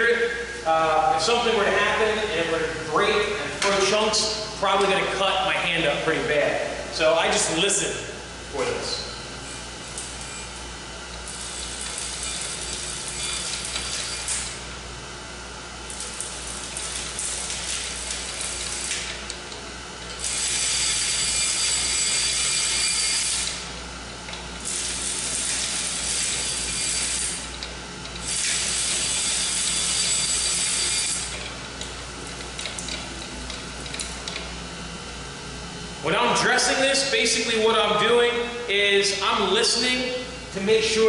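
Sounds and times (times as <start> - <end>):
grinder low hum: 0.0 - 41.0
grinding wheel dressing hiss: 28.2 - 31.4.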